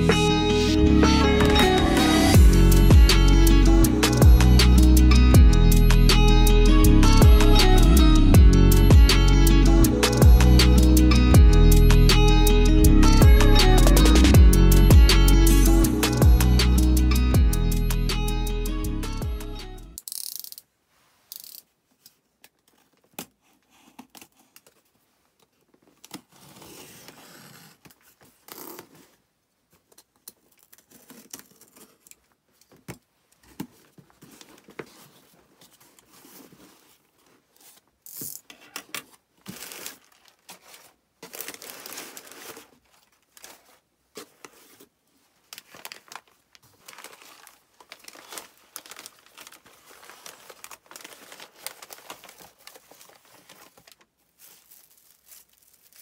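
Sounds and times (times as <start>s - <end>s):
packing tape tearing: 30.4s - 32.2s, 37.6s - 44.8s, 45.5s - 56.0s
cardboard flaps rustling and scraping: 32.7s - 38.0s
newspaper crinkling: 39.0s - 56.0s.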